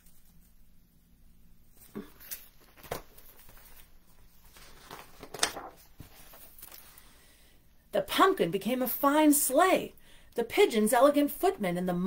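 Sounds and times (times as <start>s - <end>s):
paper rustling: 0.0s - 0.7s, 1.7s - 7.1s.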